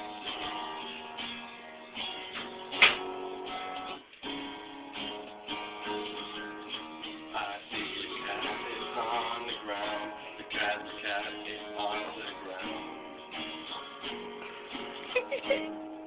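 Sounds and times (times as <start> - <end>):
guitar strumming chords: 0.0 - 16.0
sharp knock: 2.8 - 3.1.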